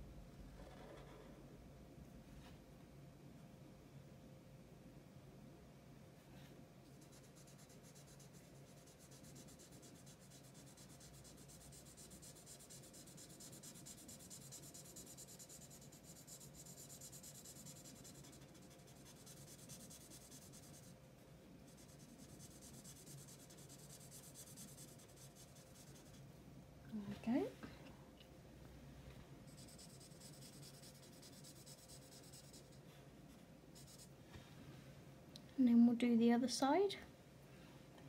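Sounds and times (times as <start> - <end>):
faint steady hum: 0.0 - 38.0
marker scratching on paper: 7.0 - 20.9, 21.7 - 26.2, 29.5 - 32.8, 33.8 - 34.1.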